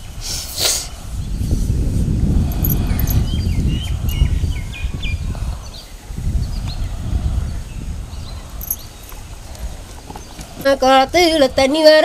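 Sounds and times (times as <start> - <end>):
low rumble on microphone: 0.9 - 11.8
small birds chirping: 2.4 - 11.9.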